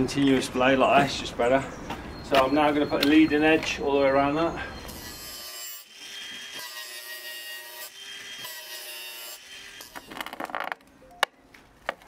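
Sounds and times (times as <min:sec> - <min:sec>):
angle grinder grinding pipe: 0:04.8 - 0:10.7.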